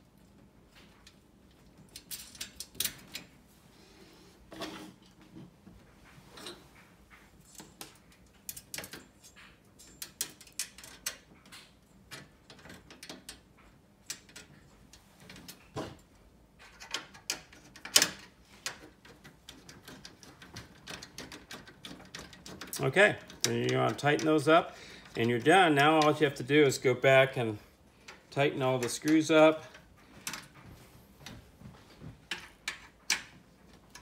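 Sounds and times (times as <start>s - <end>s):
metal screws clicking and tapping: 1.0s - 3.3s, 7.4s - 14.6s, 16.6s - 24.3s.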